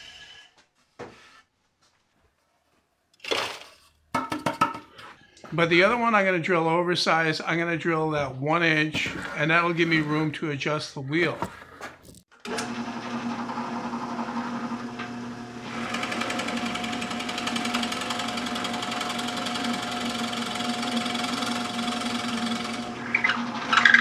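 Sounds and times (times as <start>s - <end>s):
power drill boring into wood: 12.4s - 24.0s.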